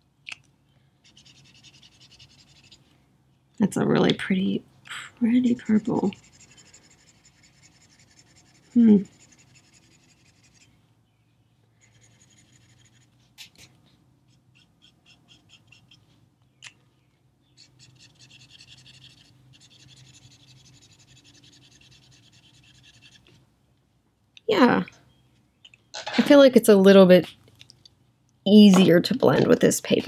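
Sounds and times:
marker nib scratching on paper: 1.0s - 2.8s, 5.5s - 10.7s, 11.8s - 13.7s, 14.3s - 16.0s, 17.6s - 23.3s.

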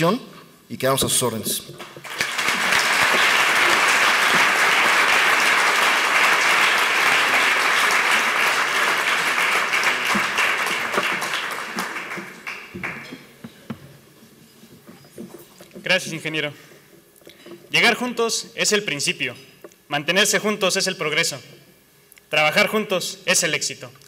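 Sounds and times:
audience applauding: 1.8s - 13.4s.

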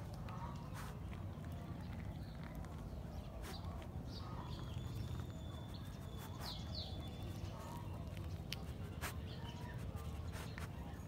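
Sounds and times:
dog sniffing: 0.2s - 1.4s, 2.5s - 11.0s
bird chirping: 0.3s - 11.0s.

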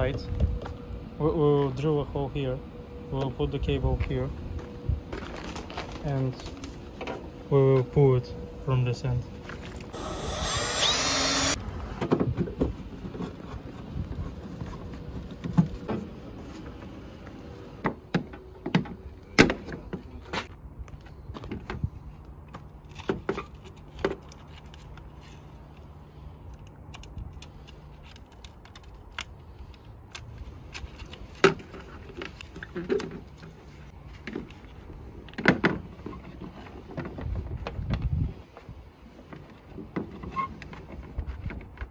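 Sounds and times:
drill stopping: 9.9s - 11.6s.

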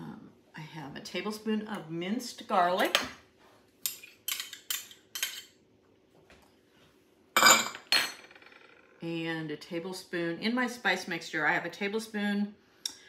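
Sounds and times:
glass bowls clinking on counter: 7.4s - 8.4s.

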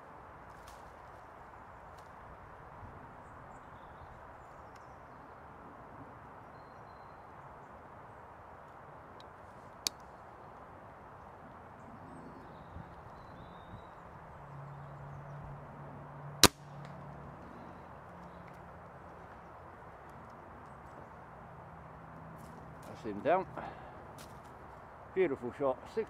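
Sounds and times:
air rifle firing: 16.4s - 16.7s.

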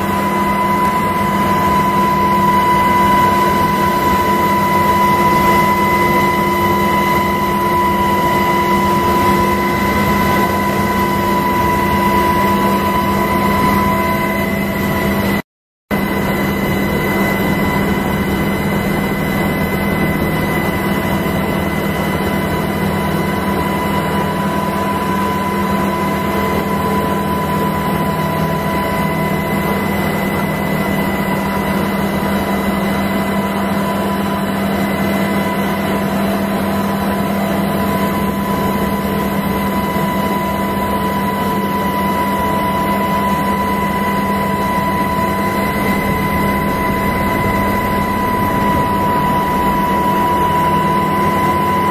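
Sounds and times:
aircraft engine drone: 0.0s - 51.9s
high whine: 0.0s - 51.9s.

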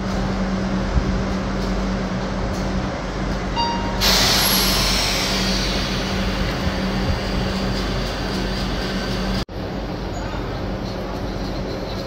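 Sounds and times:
train humming: 0.0s - 12.0s
short beep: 3.6s - 4.8s
air brakes hissing: 3.9s - 8.2s.

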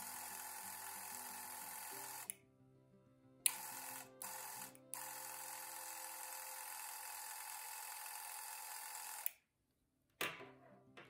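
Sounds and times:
camera motor whirring: 0.0s - 2.3s, 3.5s - 9.3s.

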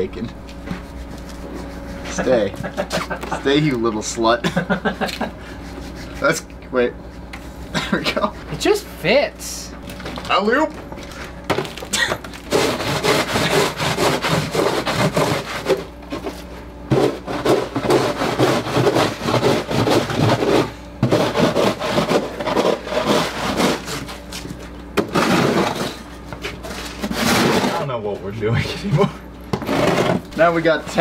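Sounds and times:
plastic shovel scraping ice: 12.4s - 24.2s, 25.0s - 27.9s, 29.6s - 31.0s.

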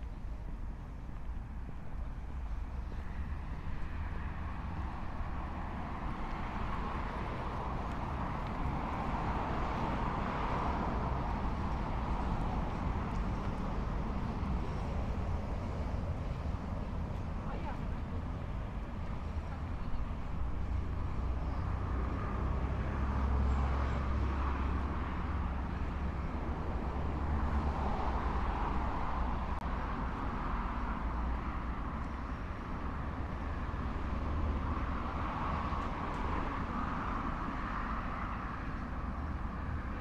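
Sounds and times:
traffic rumble and tyre noise: 0.0s - 40.0s.

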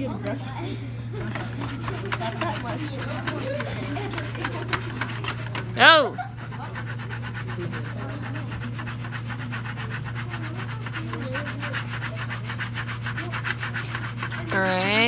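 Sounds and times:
pan scraping on wooden desk: 1.3s - 5.8s.

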